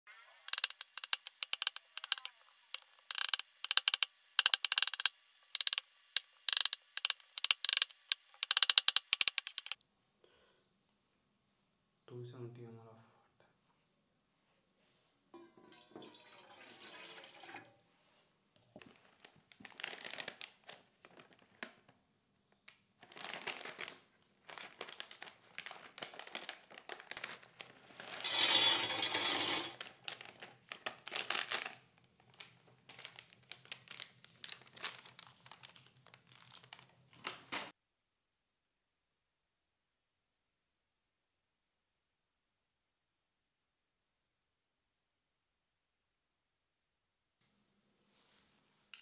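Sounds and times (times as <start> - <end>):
plastic packet crinkling: 0.5 - 9.8, 18.8 - 22.0, 22.6 - 28.8, 29.4 - 37.7.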